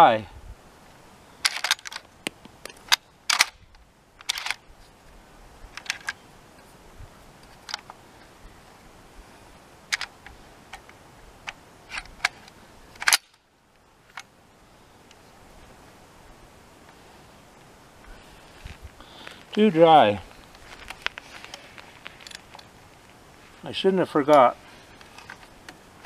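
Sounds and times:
shotgun action metallic clicks: 1.4 - 3.6, 4.2 - 4.6, 9.9 - 13.4.

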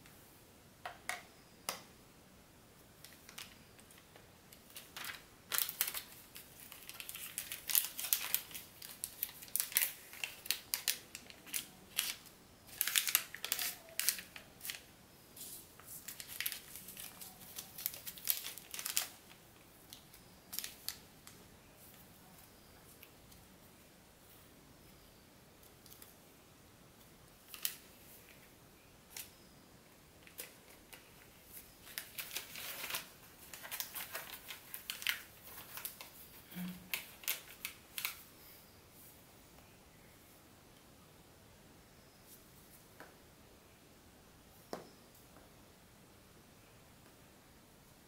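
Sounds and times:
packaging crinkling and rustling: 3.0 - 14.9, 15.8 - 21.4, 30.2 - 38.2.

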